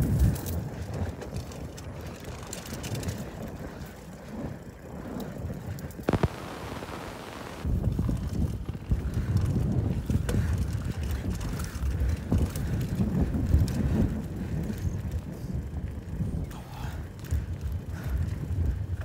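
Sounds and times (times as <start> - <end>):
bike knocks and rattles: 0.0 - 6.1, 7.7 - 16.3
wind buffeting microphone: 0.0 - 19.0.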